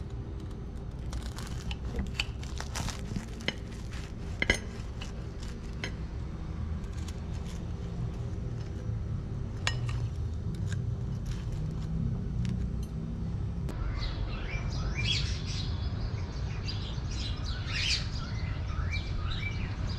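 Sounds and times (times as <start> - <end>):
low steady rumble: 0.0 - 14.3
knife cutting crisp toast: 1.0 - 6.0, 9.7 - 12.7
birds chirping: 13.7 - 19.9.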